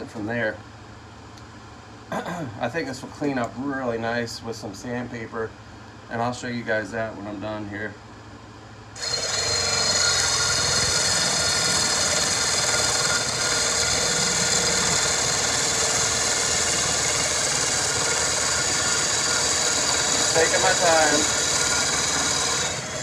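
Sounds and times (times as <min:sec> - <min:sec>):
hard wood being cut: 0:09.0 - 0:23.0
power drill whining: 0:09.0 - 0:23.0.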